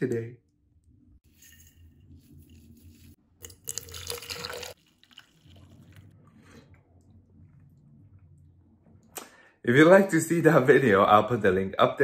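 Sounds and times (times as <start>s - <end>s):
coffee pouring into a mug: 3.4s - 6.4s.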